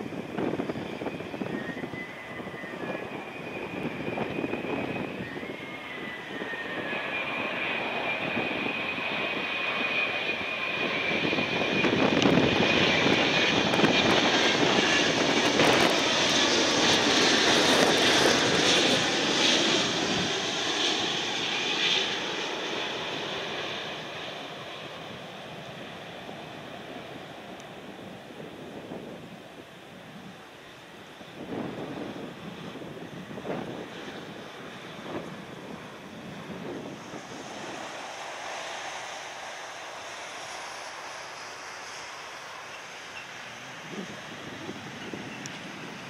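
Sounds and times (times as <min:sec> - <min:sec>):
jet rumble with fan whine: 0:00.0 - 0:46.0.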